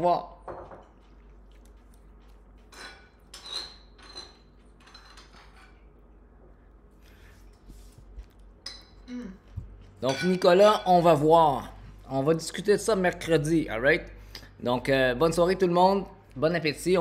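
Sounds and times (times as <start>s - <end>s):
dishes and utensils clinking: 2.6s - 5.9s, 8.6s - 9.1s, 10.0s - 11.1s.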